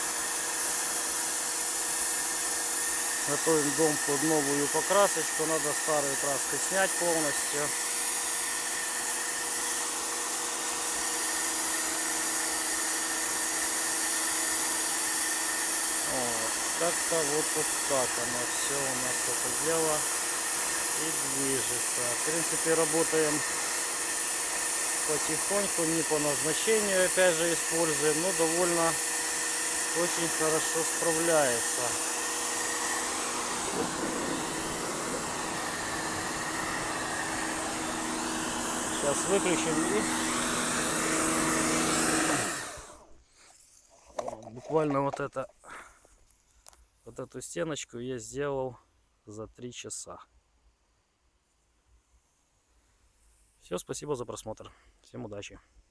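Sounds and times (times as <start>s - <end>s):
faint motor and pump hum: 0.0s - 43.2s
pressure washer jet hissing on brick: 0.0s - 44.3s.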